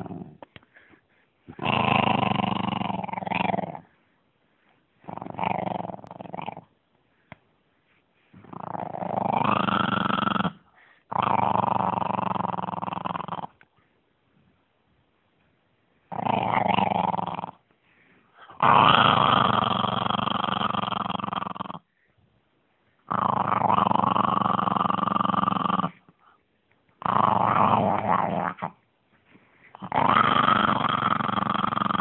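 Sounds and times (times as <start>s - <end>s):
dog growling: 0.0s - 0.5s, 1.5s - 3.9s, 5.0s - 6.7s, 8.4s - 13.6s, 16.1s - 17.6s, 18.4s - 21.9s, 23.0s - 26.0s, 27.0s - 28.8s, 29.8s - 32.0s.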